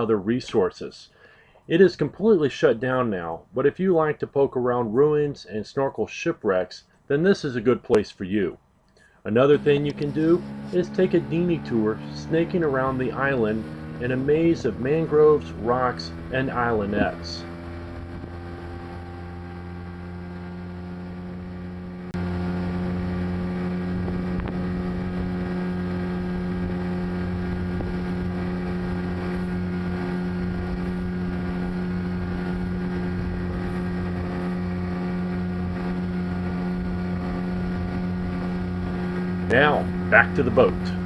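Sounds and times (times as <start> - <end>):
outboard motor running: 9.5 - 41.0.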